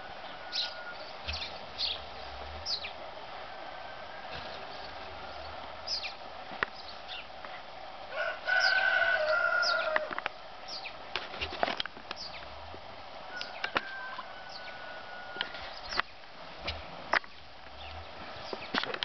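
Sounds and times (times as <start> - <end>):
drawn-out crow-like call: 0.0 - 1.5, 8.1 - 10.3, 13.2 - 16.0.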